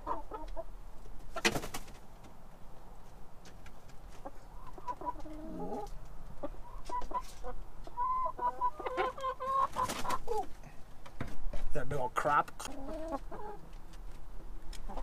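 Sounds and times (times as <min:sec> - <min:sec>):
hen clucking: 0:00.0 - 0:01.6, 0:04.1 - 0:10.6, 0:12.6 - 0:13.8, 0:14.8 - 0:15.0.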